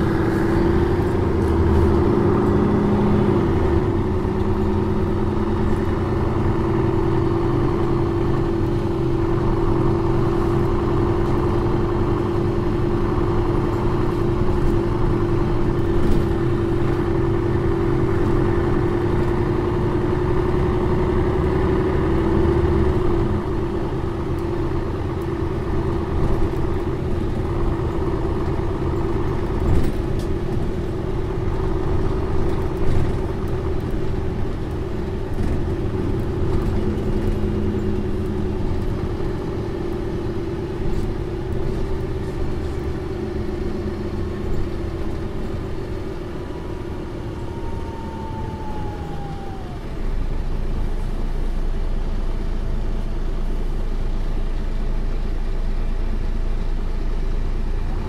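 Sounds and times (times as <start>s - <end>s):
bus diesel engine running: 0.0s - 58.0s.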